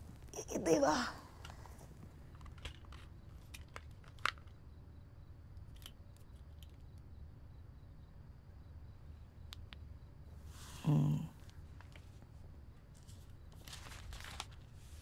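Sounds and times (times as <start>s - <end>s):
low room hum: 0.0s - 15.0s
photo album pages crackling: 1.4s - 4.6s, 11.7s - 15.0s.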